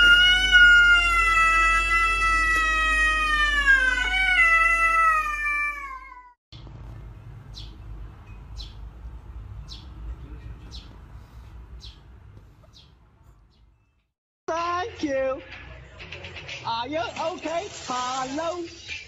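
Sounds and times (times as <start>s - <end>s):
cat meowing: 0.0s - 6.4s.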